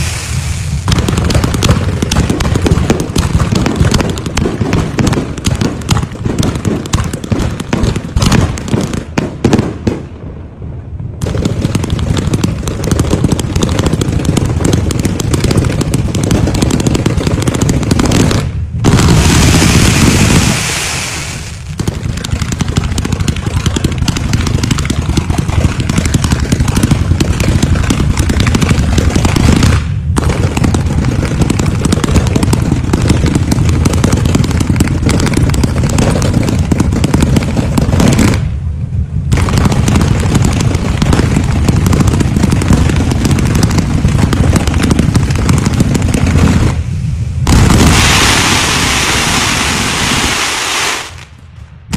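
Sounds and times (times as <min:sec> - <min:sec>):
fireworks hissing rush: 0:00.0 - 0:03.7, 0:11.2 - 0:30.1, 0:42.5 - 0:51.3
fireworks crackling and popping: 0:00.0 - 0:10.3, 0:11.0 - 0:51.9.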